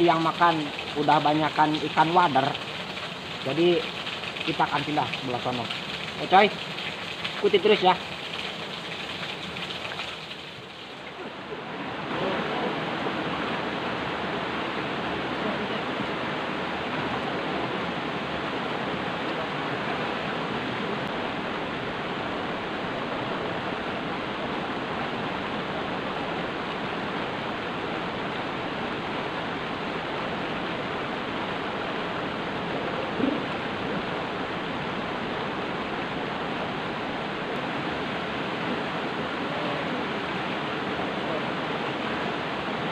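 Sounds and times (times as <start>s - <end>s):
waterfall tumbling over rocks: 0.0s - 42.9s.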